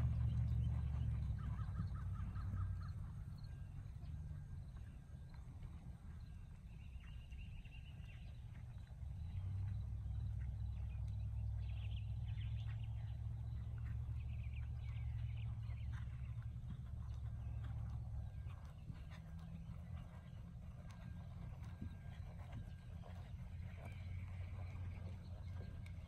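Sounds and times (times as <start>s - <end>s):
horse hoofbeats on sand: 0.0s - 26.0s
birds chirping: 10.2s - 26.0s.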